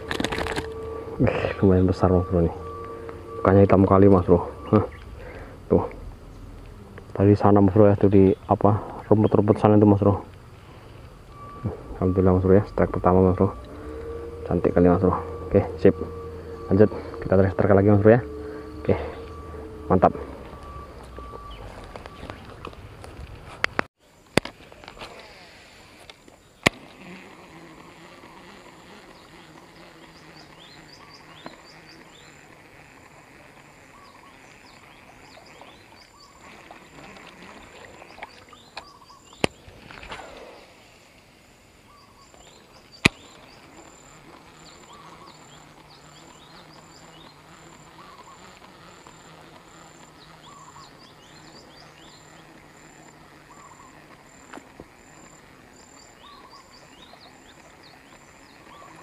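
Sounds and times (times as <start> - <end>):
fast-pulsing insect trill: 0.0 - 5.7, 9.6 - 22.6, 27.1 - 39.4, 42.0 - 59.0
low hum: 0.0 - 23.9.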